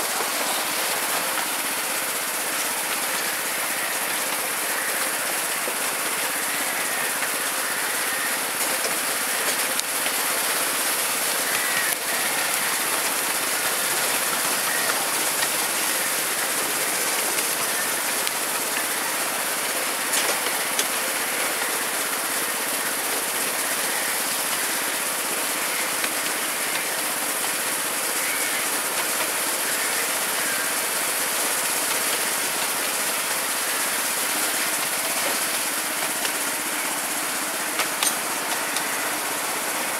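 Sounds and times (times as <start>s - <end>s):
train wheels rattling on rails: 0.0s - 39.9s.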